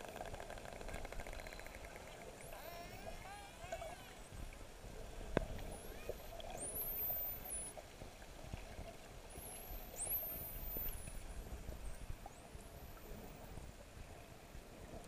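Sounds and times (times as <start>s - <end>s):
low water rush: 0.0s - 15.0s
dolphins whistling underwater: 5.6s - 7.8s, 9.3s - 13.6s.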